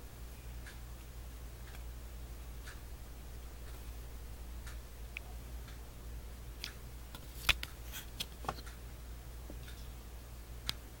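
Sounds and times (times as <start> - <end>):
steady low hum: 0.0 - 11.0
cardboard card clicks and scrapes: 7.2 - 8.6.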